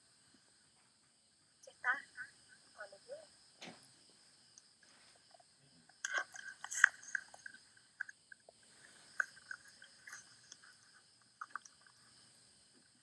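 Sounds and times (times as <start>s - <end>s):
faint high-pitched hiss: 0.0s - 13.0s
small clicks and ticks: 4.5s - 13.0s.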